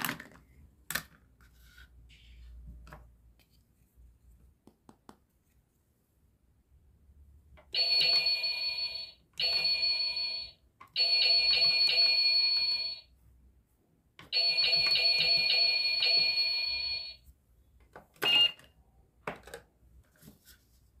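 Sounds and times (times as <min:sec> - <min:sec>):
short beep: 0:18.2 - 0:18.6.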